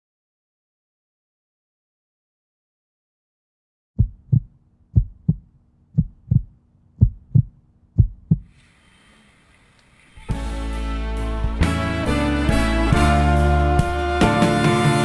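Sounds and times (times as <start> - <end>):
heartbeat thumps: 4.0 - 8.5
faint hiss: 8.5 - 10.8.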